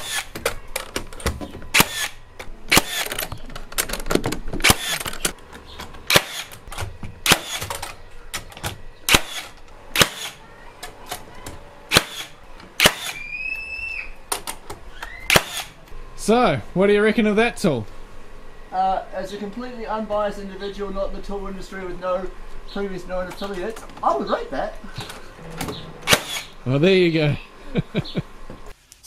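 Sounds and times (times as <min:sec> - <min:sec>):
nailer firing nails: 0:01.7 - 0:03.2, 0:04.1 - 0:05.2, 0:06.1 - 0:07.8, 0:09.1 - 0:10.4, 0:11.9 - 0:13.2, 0:15.3 - 0:15.7, 0:26.1 - 0:26.5.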